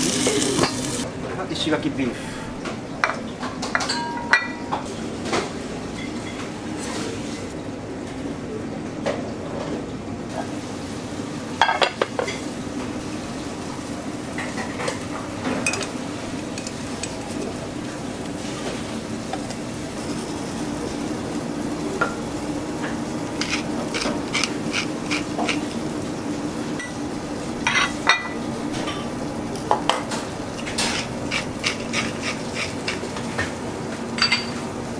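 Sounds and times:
frying sizzle: 0:00.0 - 0:01.1, 0:10.3 - 0:34.9
metal utensils and plates clinking: 0:03.6 - 0:04.8, 0:14.4 - 0:17.6, 0:27.6 - 0:29.1, 0:29.9 - 0:33.0, 0:34.2 - 0:34.6.

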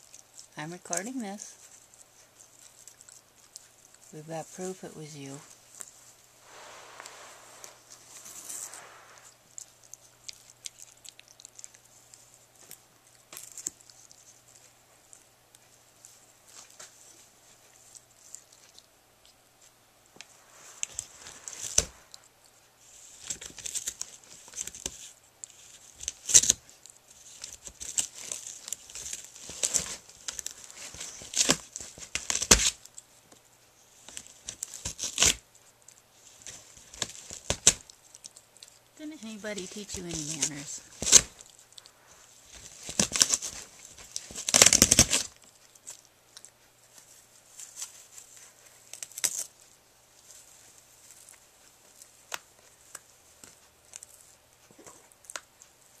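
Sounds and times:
puppy chewing cardboard: 0:00.0 - 0:04.8, 0:05.4 - 0:56.0
paper ripping and crinkling: 0:20.5 - 0:32.9, 0:34.0 - 0:35.4, 0:36.2 - 0:37.9, 0:39.2 - 0:46.0, 0:46.9 - 0:50.4.

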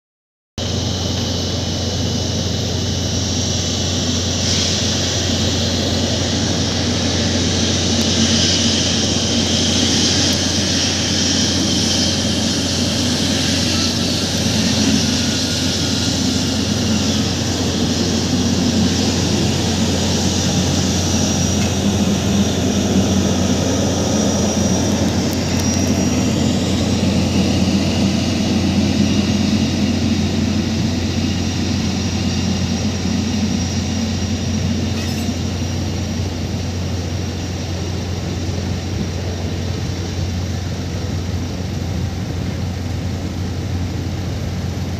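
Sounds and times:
faint high engine whine: 0:00.6 - 0:44.9
jet engines rushing: 0:00.6 - 0:44.9.

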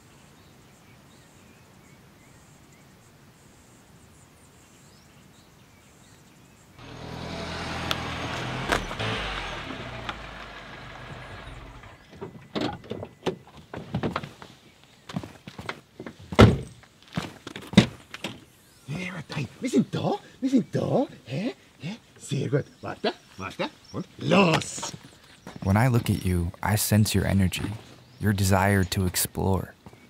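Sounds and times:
car engine rolling up: 0:06.8 - 0:12.9.

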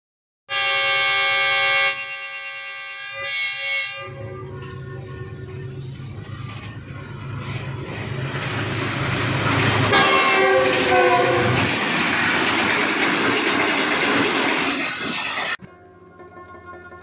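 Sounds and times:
train horn: 0:00.5 - 0:06.7, 0:09.8 - 0:11.7
train rumble: 0:04.1 - 0:15.6
wheels clattering on rails: 0:06.2 - 0:15.6.

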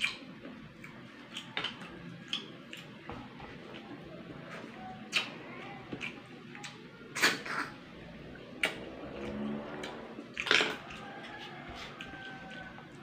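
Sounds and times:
chewing clicks: 0:00.0 - 0:03.0, 0:05.0 - 0:07.6, 0:08.6 - 0:13.0.

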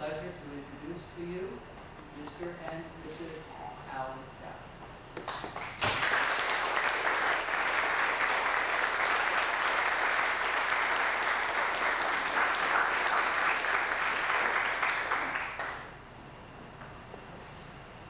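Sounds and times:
congregation applauding: 0:05.2 - 0:16.0.

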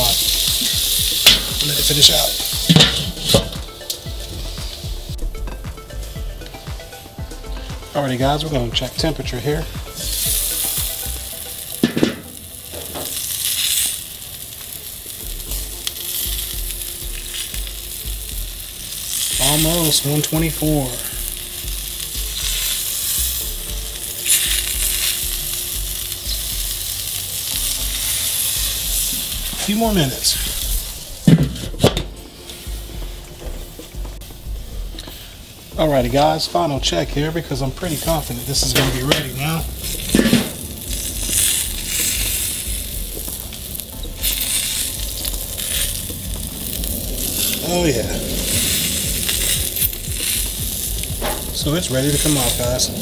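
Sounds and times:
fat popping: 0:00.0 - 0:07.9, 0:09.8 - 0:14.0, 0:30.4 - 0:35.3, 0:38.7 - 0:53.0
steak sizzling on a grill: 0:00.0 - 0:53.0
low rumble: 0:36.8 - 0:53.0.

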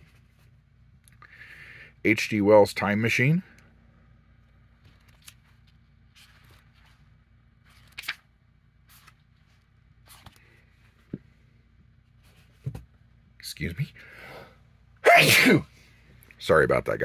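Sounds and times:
book pages rustling: 0:04.8 - 0:11.2.

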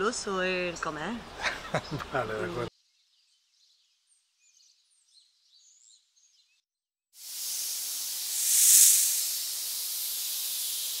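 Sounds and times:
birdsong: 0:01.2 - 0:06.6
snake hissing: 0:07.2 - 0:11.0.

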